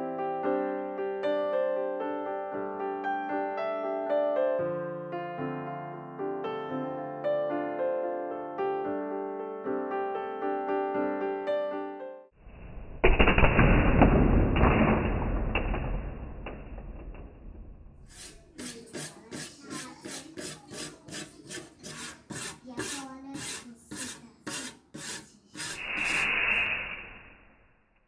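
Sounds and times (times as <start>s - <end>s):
wire brush scrubbing metal: 18.1s - 26.6s.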